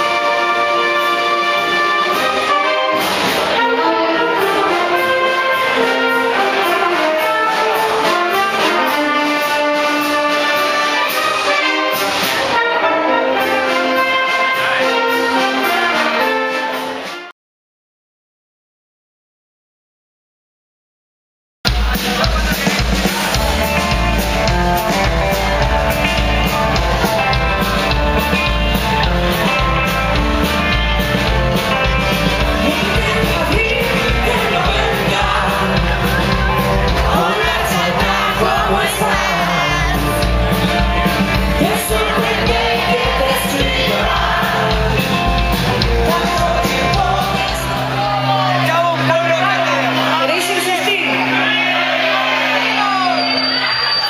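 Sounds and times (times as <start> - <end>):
live rock band playing: 0.0 - 17.3, 21.7 - 54.0
person singing: 32.4 - 49.1.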